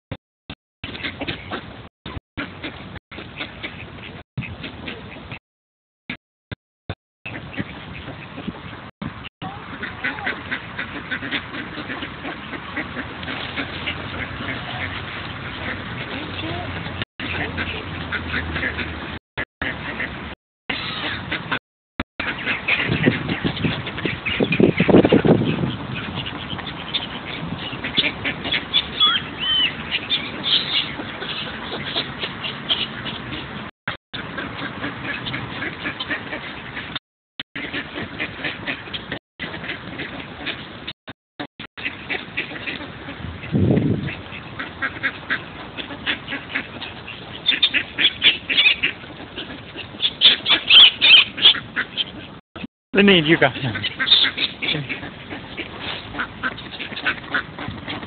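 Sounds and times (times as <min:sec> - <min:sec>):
ducks quacking: 0:00.8 - 0:05.4, 0:07.3 - 0:21.6, 0:22.2 - 0:37.0, 0:37.6 - 0:41.0, 0:41.8 - 0:58.0
short whistled calls: 0:29.0 - 0:29.8.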